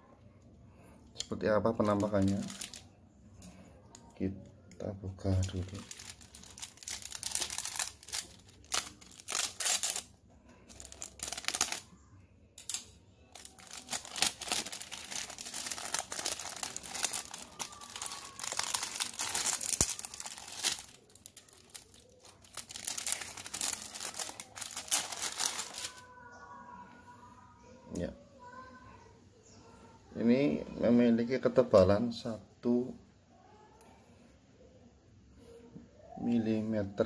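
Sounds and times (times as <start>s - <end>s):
cellophane wrapping crinkling: 1.7s - 2.9s, 5.2s - 12.0s, 12.6s - 26.1s.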